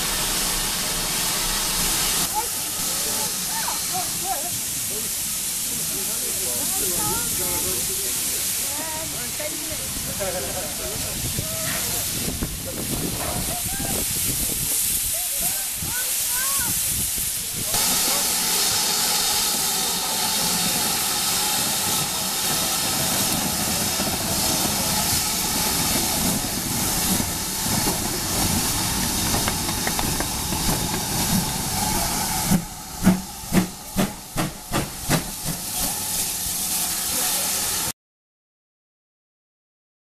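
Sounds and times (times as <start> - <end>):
steam hissing: 0.0 - 37.9
steam locomotive exhaust chuffs: 16.1 - 37.9.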